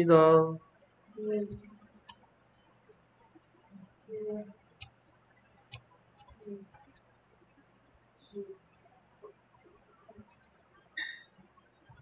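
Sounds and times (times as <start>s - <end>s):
faint keyboard clicking: 1.2s - 2.4s, 4.1s - 7.2s, 8.4s - 11.1s, 11.7s - 12.0s.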